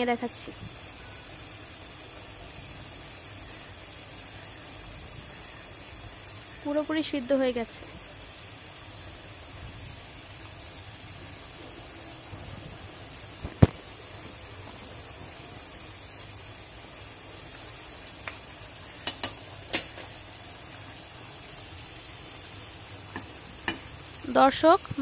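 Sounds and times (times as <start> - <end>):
curry simmering in pan: 0.1 - 25.0
utensils tapping pan: 18.0 - 20.2, 23.1 - 23.9.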